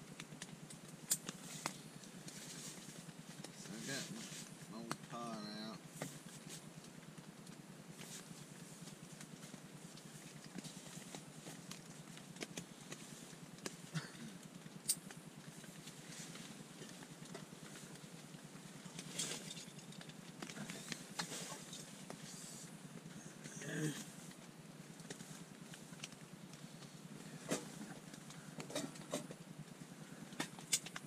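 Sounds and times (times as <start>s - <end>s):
rain pattering on a tent: 19.8s - 23.0s.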